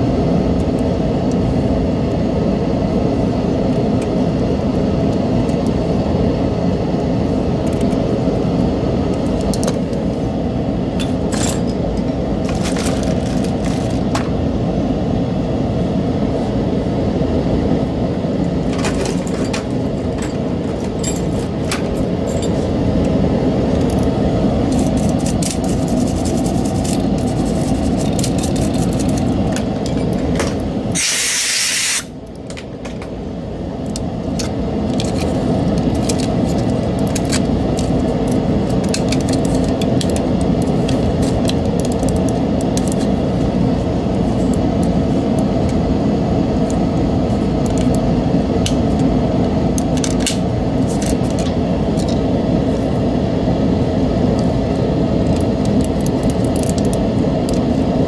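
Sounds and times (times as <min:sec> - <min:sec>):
low background hum: 0:00.0 - 0:58.0
hiss: 0:30.9 - 0:32.1.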